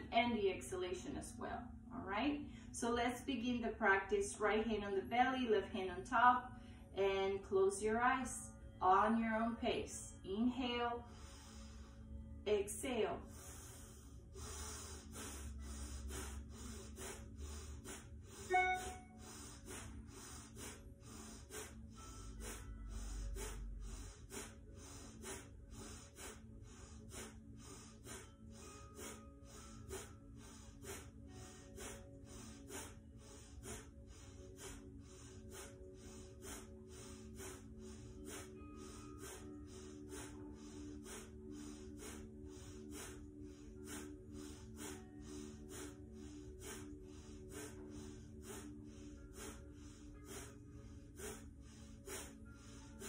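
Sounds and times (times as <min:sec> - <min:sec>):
soft background music: 0:00.0 - 0:53.0
woman breathing forcefully through nose: 0:11.1 - 0:12.4, 0:13.2 - 0:53.0.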